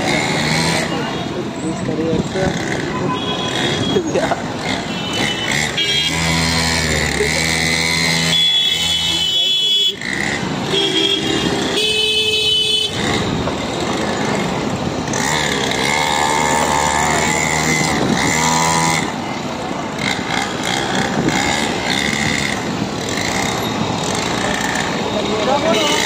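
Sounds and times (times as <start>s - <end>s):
motorcycle engines running: 0.0s - 26.0s
mini dirt bike engine: 4.5s - 8.4s, 12.9s - 26.0s.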